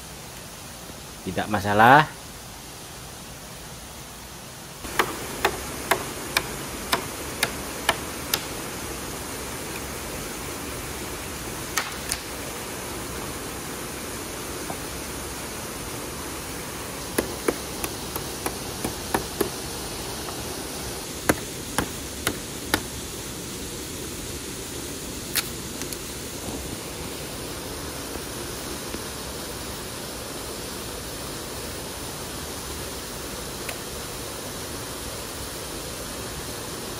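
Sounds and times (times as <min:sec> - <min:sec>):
steady rush of noise: 0:00.0 - 0:36.9
blade chopping wooden branch: 0:04.9 - 0:08.6, 0:11.7 - 0:12.3, 0:17.2 - 0:19.6, 0:21.2 - 0:23.0.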